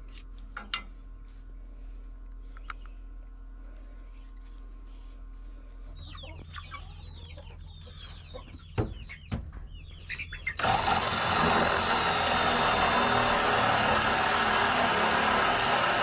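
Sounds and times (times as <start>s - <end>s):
hens clucking: 5.9s - 10.6s.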